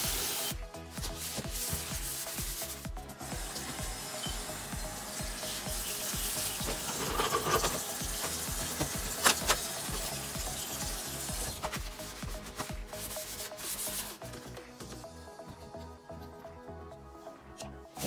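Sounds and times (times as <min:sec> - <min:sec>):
sponge scrubbing steel sink: 0:00.0 - 0:02.8, 0:05.4 - 0:14.2
background music with steady beat: 0:00.0 - 0:18.0.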